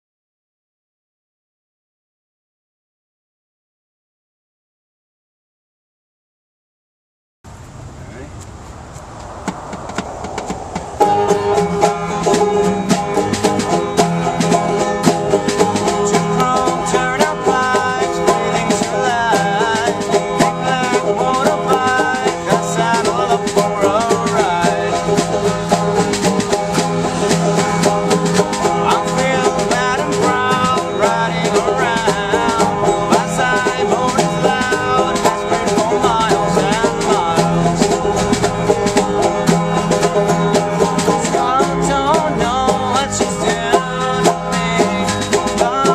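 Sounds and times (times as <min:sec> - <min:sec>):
strummed guitars: 0:10.8 - 0:45.9
man singing: 0:15.8 - 0:26.4, 0:28.5 - 0:45.9.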